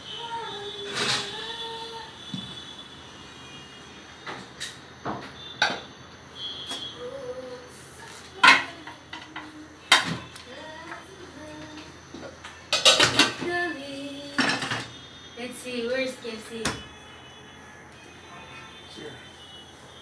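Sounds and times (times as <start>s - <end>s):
metal pot and lid clanking: 8.4s - 10.2s, 12.7s - 13.4s, 14.4s - 14.9s.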